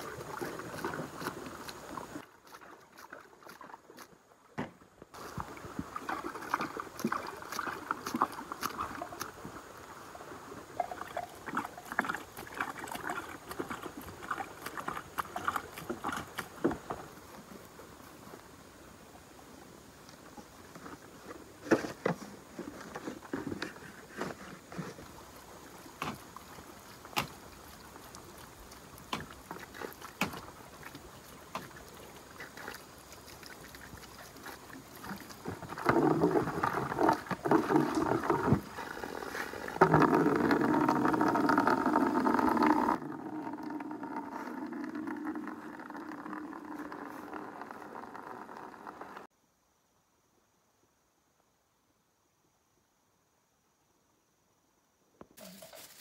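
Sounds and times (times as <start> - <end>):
water pouring onto soil: 55.4 - 56.0.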